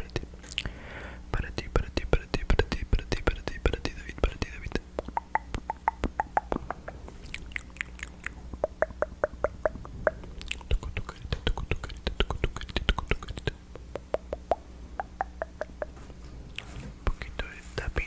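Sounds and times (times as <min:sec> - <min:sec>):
tongue clicks and mouth pops: 0:00.1 - 0:00.7, 0:04.2 - 0:16.0.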